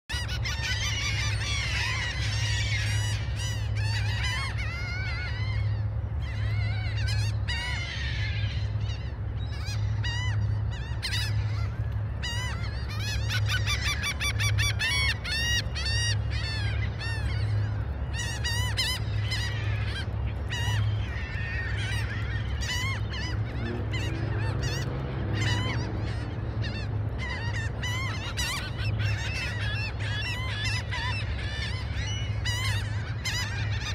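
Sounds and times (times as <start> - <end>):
gulls calling: 0.1 - 33.9.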